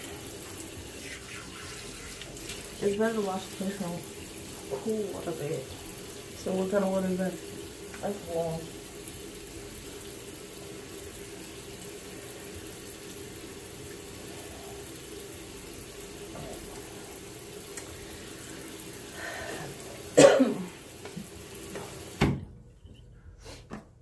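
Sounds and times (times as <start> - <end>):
running water hiss: 0.0 - 22.4
person coughing: 20.2 - 20.7.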